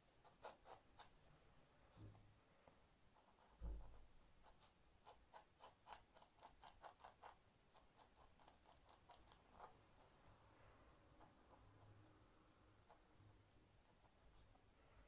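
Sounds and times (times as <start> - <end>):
pen nib scratching on paper: 0.0 - 1.2, 3.2 - 10.2
soft thump: 3.6 - 4.0.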